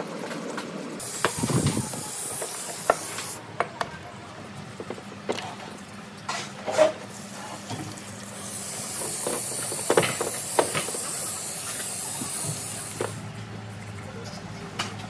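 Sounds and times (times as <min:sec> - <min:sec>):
spray gun hissing: 0:01.0 - 0:03.4, 0:08.3 - 0:13.2.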